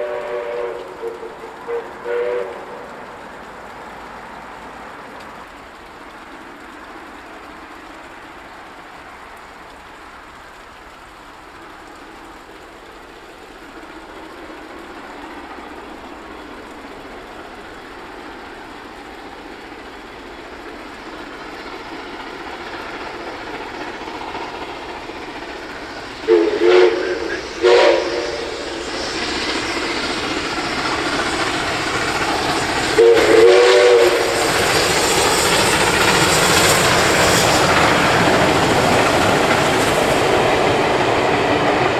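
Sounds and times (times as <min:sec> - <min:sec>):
steam whistle blasts: 0:00.0 - 0:02.8, 0:26.2 - 0:29.5, 0:32.8 - 0:35.2
steam locomotive exhaust and wheels: 0:00.0 - 0:41.9.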